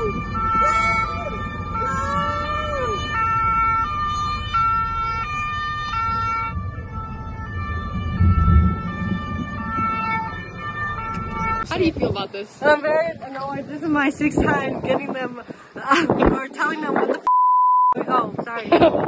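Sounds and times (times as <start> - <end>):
two-tone siren: 0.0 - 11.8
car moving on road rumble: 0.0 - 17.3.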